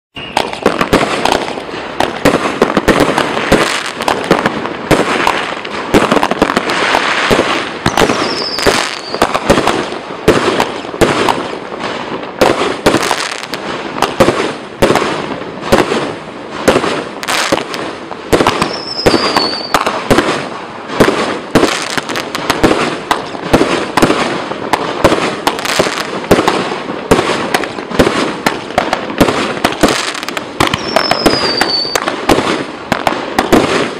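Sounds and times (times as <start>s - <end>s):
falling whistle: 0.2s - 0.5s, 8.1s - 9.2s, 18.7s - 19.8s, 30.8s - 32.0s
firework bursts hissing and crackling: 0.2s - 33.9s
firework shots firing: 0.2s - 33.9s.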